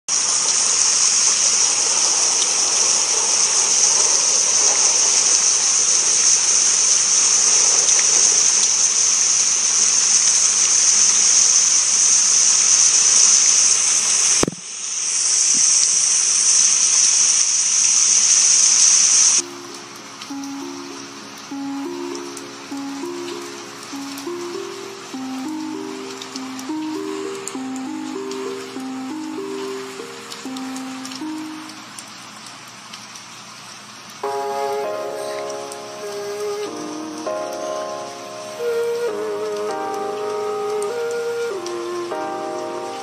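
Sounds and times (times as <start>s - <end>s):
heavy rain hissing: 0.1s - 43.0s
quiet simple melody: 19.4s - 32.5s, 34.2s - 43.0s.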